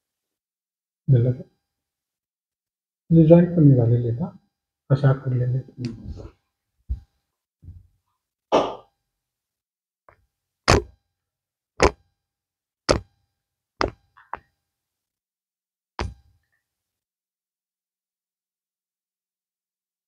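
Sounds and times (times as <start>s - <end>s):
finger joints popping: 10.7s - 11.0s, 11.8s - 12.0s.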